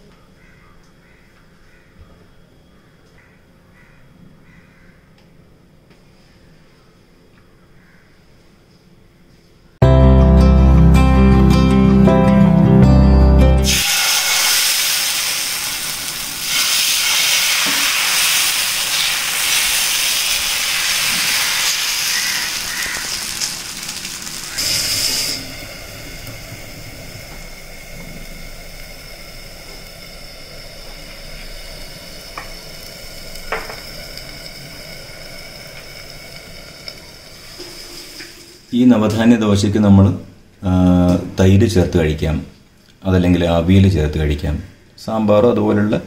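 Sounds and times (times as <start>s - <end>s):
batter sizzling on hot pan: 13.6s - 38.6s.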